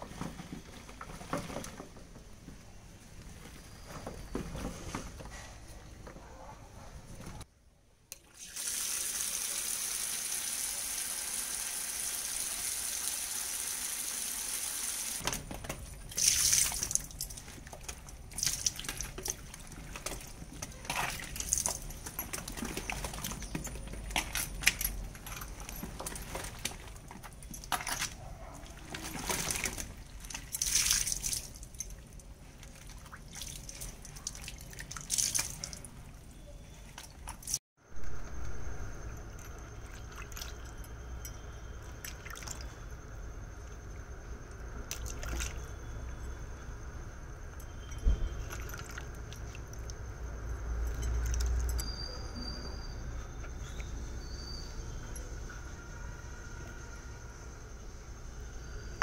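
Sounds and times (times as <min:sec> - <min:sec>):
water running into plastic basin: 0:08.2 - 0:15.2.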